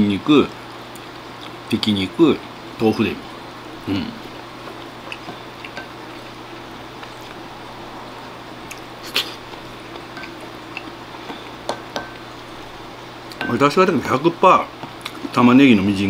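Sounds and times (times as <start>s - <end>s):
steady low hum: 0.0s - 16.0s
wet chewing: 4.2s - 7.8s, 8.6s - 12.6s, 14.8s - 15.4s
spoon tapping bowl: 11.3s - 12.2s.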